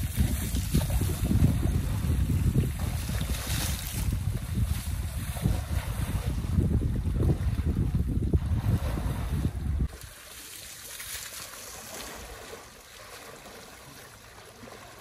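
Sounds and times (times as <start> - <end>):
wind buffeting microphone: 0.0 - 10.0
elephant wading through water: 0.0 - 15.0.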